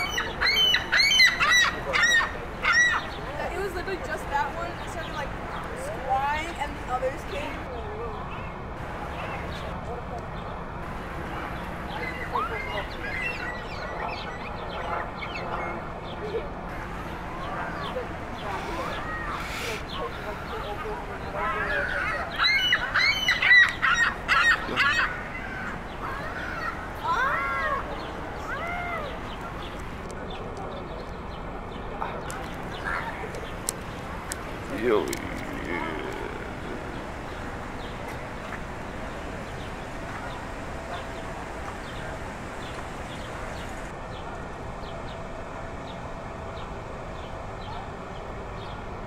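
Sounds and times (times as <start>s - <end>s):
gulls squawking: 0.0s - 3.2s, 18.8s - 29.3s, 34.6s - 38.6s
steady rushing background noise: 23.6s - 49.0s.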